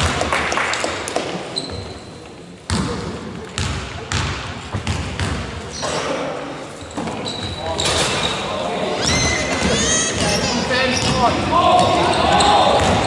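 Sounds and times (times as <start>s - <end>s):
basketball bouncing on wooden floor: 3.6s - 5.5s.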